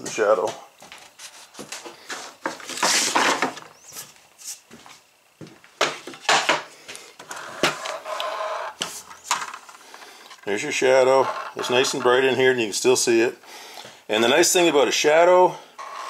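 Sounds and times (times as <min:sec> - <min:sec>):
scrap wood clattering and scraping: 0:00.9 - 0:03.7, 0:05.8 - 0:12.3, 0:15.8 - 0:16.0.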